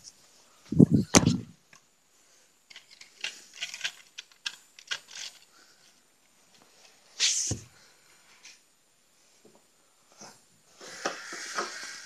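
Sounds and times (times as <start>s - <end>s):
plastic toy train rattling: 2.7s - 5.6s.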